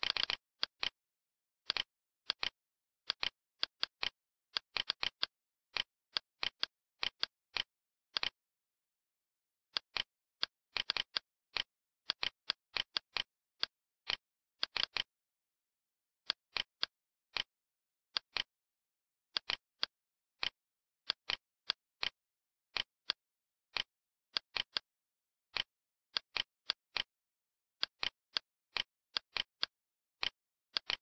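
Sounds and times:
computer mouse buttons clicking: 1.7s - 8.4s.

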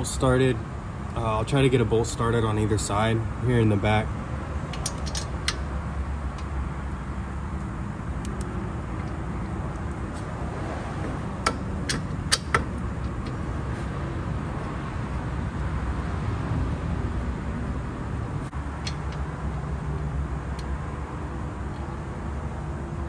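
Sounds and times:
steady low rumble: 0.0s - 23.0s
sharp metallic clicks: 4.6s - 7.0s, 7.6s - 10.2s, 11.0s - 13.5s, 18.7s - 20.8s.

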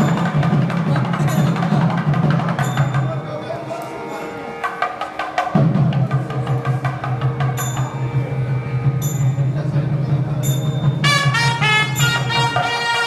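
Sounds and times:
double-reed oboe held tone: 11.0s - 13.0s.

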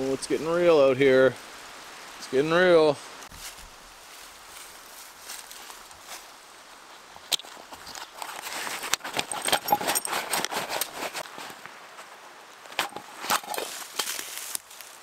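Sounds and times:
camp gear rustling and clinking: 4.6s - 15.0s.

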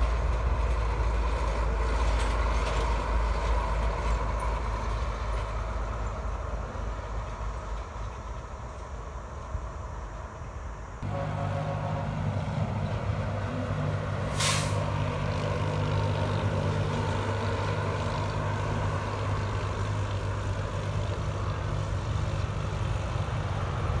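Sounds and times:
diesel truck engine passing: 0.0s - 8.8s, 11.0s - 24.0s
air brake hiss: 14.2s - 15.0s.

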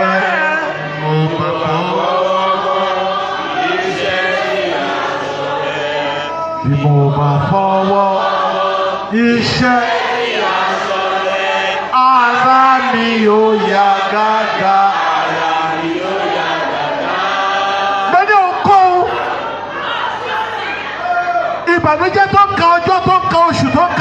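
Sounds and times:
congregation chanting: 0.0s - 24.0s.

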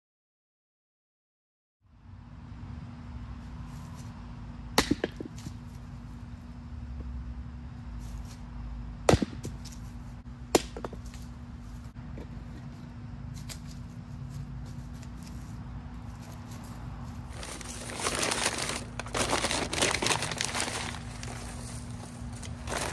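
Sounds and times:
steady low hum: 1.8s - 22.9s
hatchet chopping wood: 4.8s - 5.5s, 9.0s - 9.8s, 10.5s - 11.2s.

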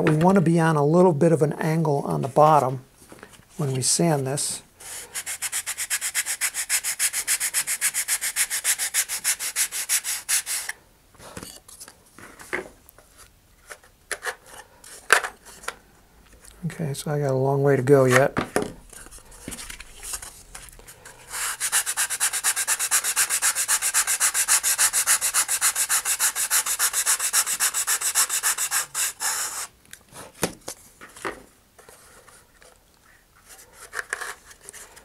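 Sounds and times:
wood rubbing on sandpaper: 4.8s - 10.7s, 18.9s - 29.7s.

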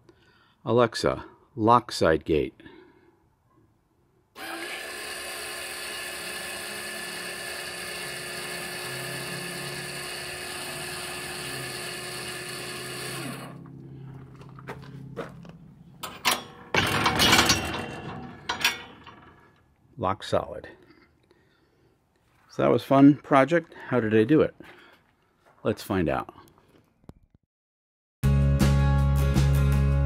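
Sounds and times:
electric actuator whine: 4.4s - 19.6s
loud rattling knocks: 16.0s - 19.4s.

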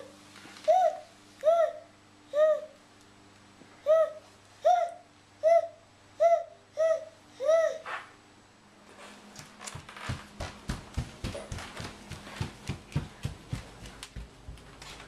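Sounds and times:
footsteps on hardwood floor: 9.0s - 15.0s.

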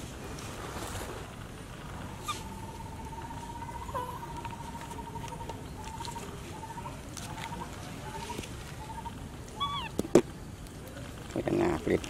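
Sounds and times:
baby monkey crying: 9.0s - 10.0s.

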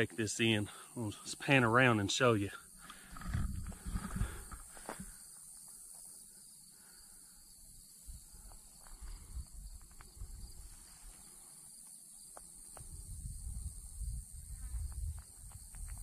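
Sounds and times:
high-pitched insect chorus: 0.0s - 16.0s
wind rumble on microphone: 3.1s - 4.7s, 8.1s - 10.8s, 12.8s - 16.0s.

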